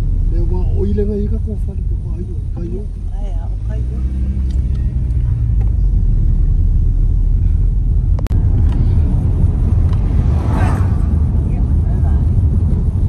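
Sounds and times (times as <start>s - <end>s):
car cabin road rumble: 0.0s - 13.0s
brief rushing noise: 8.4s - 13.0s.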